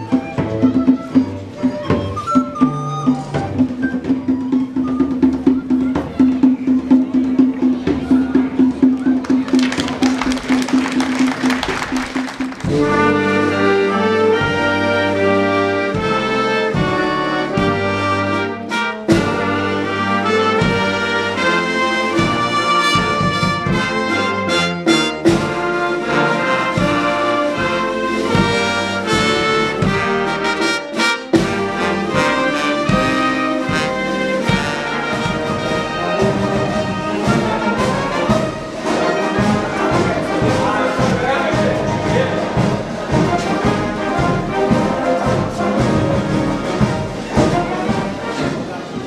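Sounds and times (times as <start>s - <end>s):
military brass band playing: 0.0s - 49.0s.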